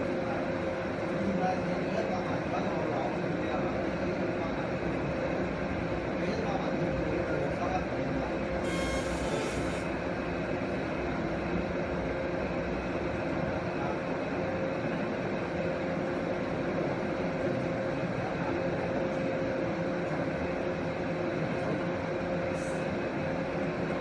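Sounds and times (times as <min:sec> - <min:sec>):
laser marking machine humming: 0:08.3 - 0:10.4.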